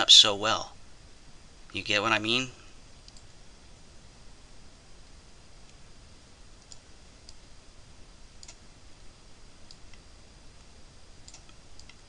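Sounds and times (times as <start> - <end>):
low steady hiss: 0.0 - 12.0
computer mouse clicks: 3.0 - 3.3, 6.6 - 7.4, 8.4 - 8.6, 9.7 - 10.0, 11.2 - 12.0.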